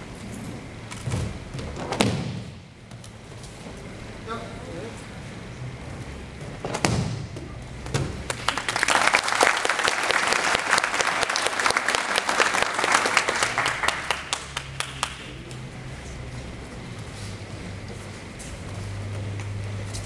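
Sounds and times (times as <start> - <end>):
spectators clapping: 8.2 - 15.7.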